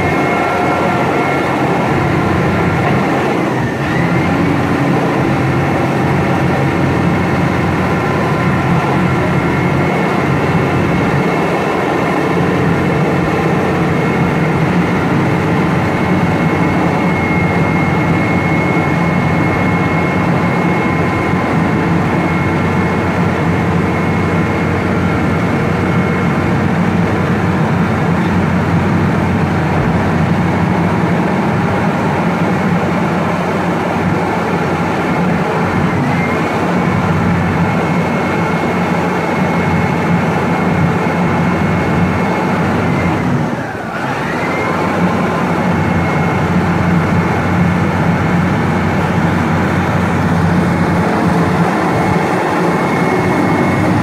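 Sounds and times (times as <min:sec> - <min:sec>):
faint whining tones: 0:00.0 - 0:32.2
diesel engine drone: 0:00.0 - 0:54.0.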